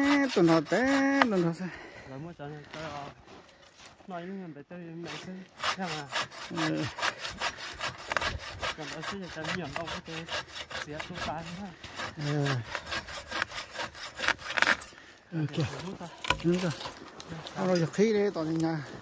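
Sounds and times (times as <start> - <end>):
hand saw cutting wood: 0.0 - 1.6, 5.0 - 15.0, 15.6 - 17.0.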